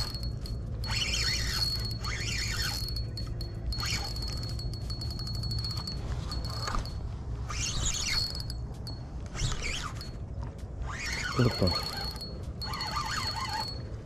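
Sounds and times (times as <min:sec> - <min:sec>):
fishing reel ticking and whining: 0:00.0 - 0:10.2, 0:10.8 - 0:14.0
short squealing calls: 0:00.8 - 0:03.1, 0:07.4 - 0:08.5, 0:10.8 - 0:13.8.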